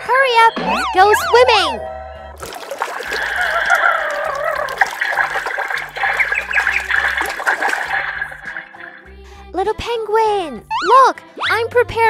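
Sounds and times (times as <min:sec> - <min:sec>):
water splashing and bubbling: 0:02.4 - 0:09.2.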